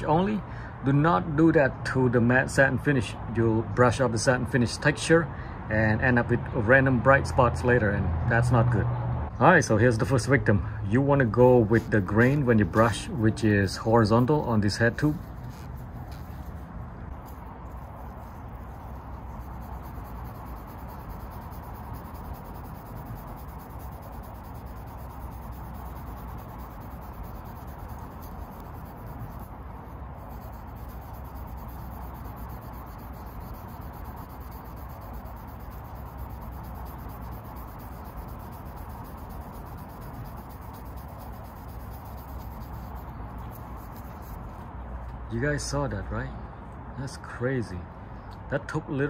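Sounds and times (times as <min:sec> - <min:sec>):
abrasive pad scrubbing metal: 0:11.1 - 0:16.5, 0:17.2 - 0:44.3.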